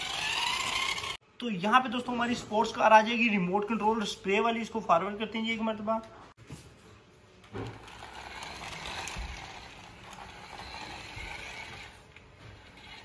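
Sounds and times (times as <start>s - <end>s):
plastic wheels rolling on concrete: 0.0s - 1.2s, 7.5s - 13.0s
toy car motor whirring: 0.0s - 1.2s, 7.7s - 13.0s.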